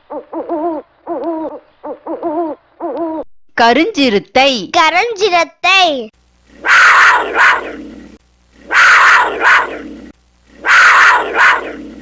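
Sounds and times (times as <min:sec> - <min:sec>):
panther roaring: 0:06.6 - 0:12.0.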